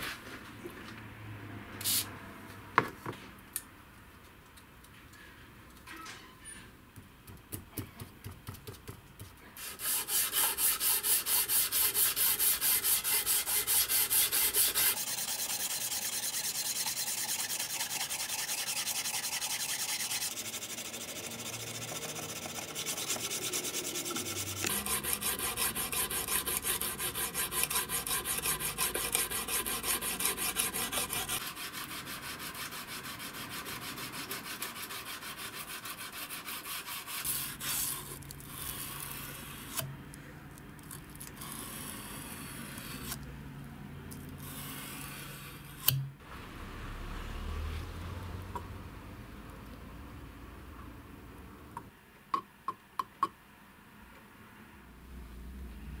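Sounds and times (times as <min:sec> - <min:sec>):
sandpaper scraping knife blade: 0:09.6 - 0:39.9, 0:41.3 - 0:43.2, 0:44.4 - 0:46.0.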